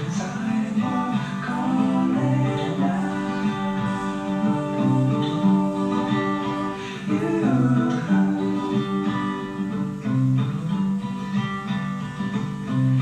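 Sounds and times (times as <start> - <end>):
plucked guitar playing chords: 0.0 - 13.0.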